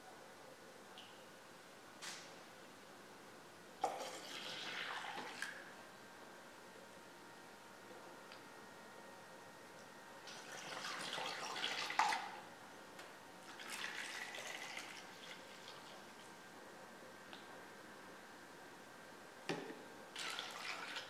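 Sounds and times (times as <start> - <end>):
liquid pouring into glass jar: 13.5 - 16.0.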